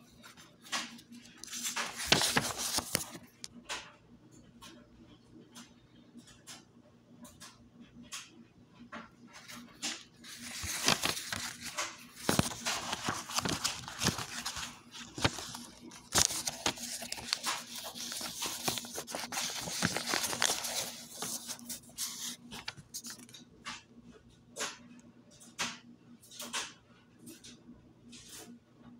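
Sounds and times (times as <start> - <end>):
book pages rustling: 0.1 - 3.5, 9.4 - 23.4.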